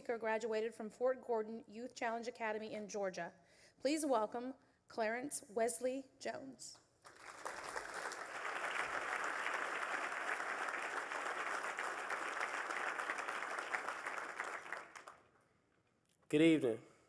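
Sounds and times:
audience applauding: 7.1s - 15.3s.

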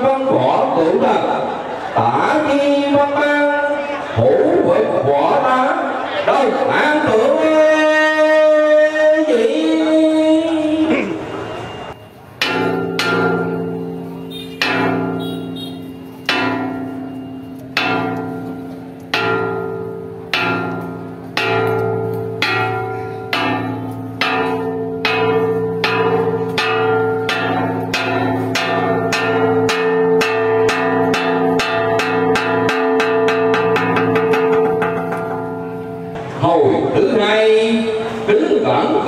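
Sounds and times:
large bell ringing: 10.8s - 36.3s.

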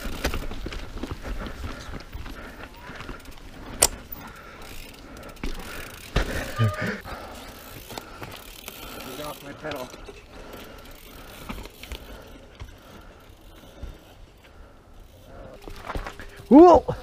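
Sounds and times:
bicycle freehub buzzing: 1.3s - 16.7s
bike clicks and knocks: 3.2s - 6.6s, 9.6s - 13.0s.

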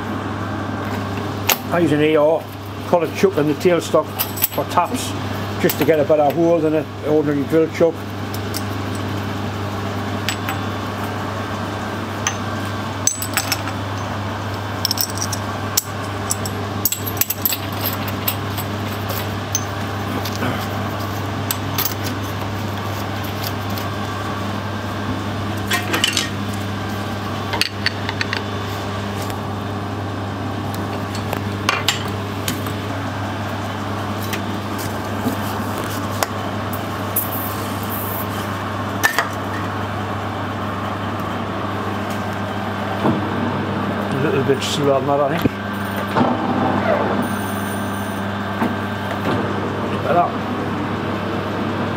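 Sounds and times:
steady low hum: 0.0s - 51.9s
small metal parts clinking: 14.8s - 20.4s.

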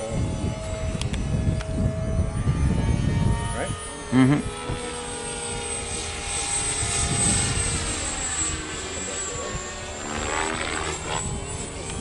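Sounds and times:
model plane motor whine: 0.0s - 12.0s.

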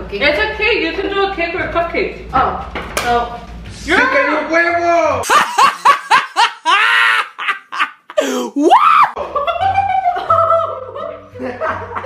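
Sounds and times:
background music: 0.0s - 12.0s
laughter: 5.2s - 8.2s, 9.2s - 12.0s
person shouting: 8.2s - 9.1s
woman screaming: 8.2s - 9.2s.

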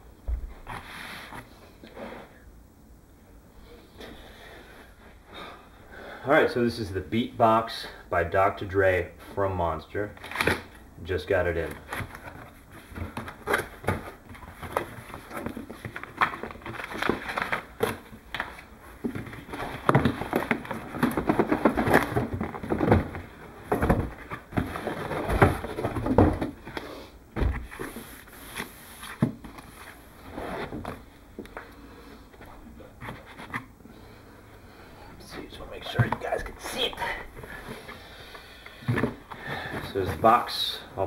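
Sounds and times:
cardboard scraping and rustling: 11.8s - 26.8s, 27.4s - 31.1s.

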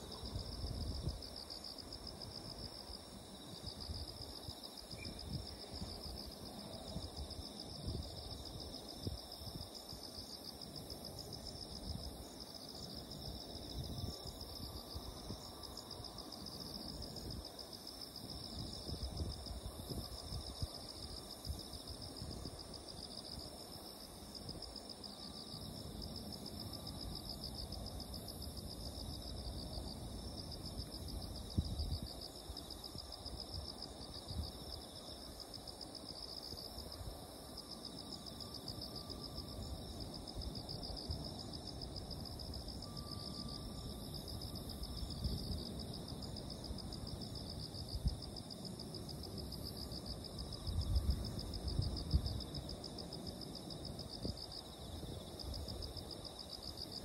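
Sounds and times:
insects trilling: 37.6s - 57.0s.

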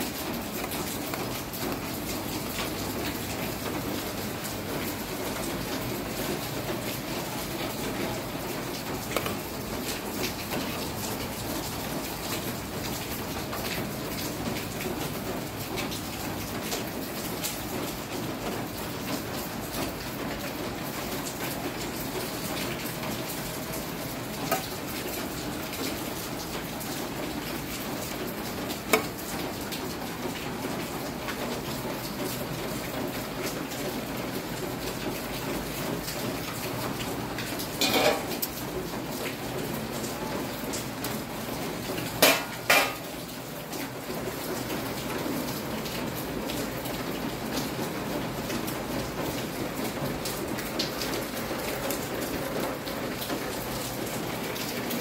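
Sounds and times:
steady rain falling: 0.0s - 55.0s
utensil clanking on metal pot: 24.5s - 24.7s, 37.8s - 38.5s, 42.2s - 43.0s.

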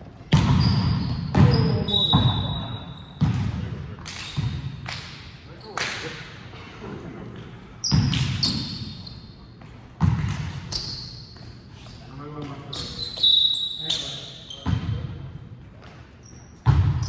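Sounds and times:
ball bouncing on gym floor: 0.3s - 5.1s, 7.8s - 8.9s, 9.6s - 11.6s, 14.6s - 15.1s, 16.6s - 17.0s
short high squeaks: 12.7s - 14.6s.

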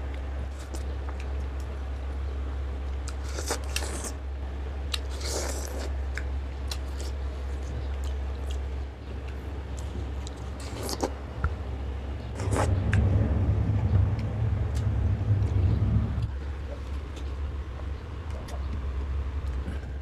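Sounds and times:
steady low hum: 0.0s - 20.0s
crunchy watermelon bites: 3.0s - 4.2s.

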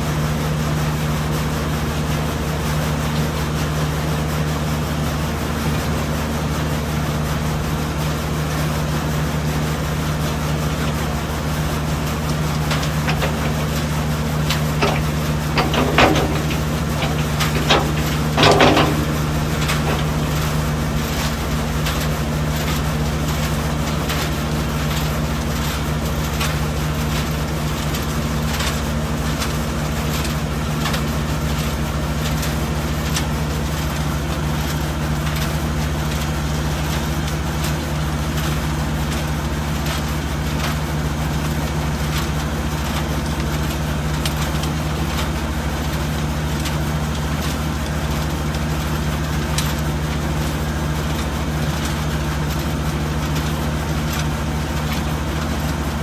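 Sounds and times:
engine droning: 9.8s - 26.5s
short clicks and knocks: 14.5s - 20.4s.

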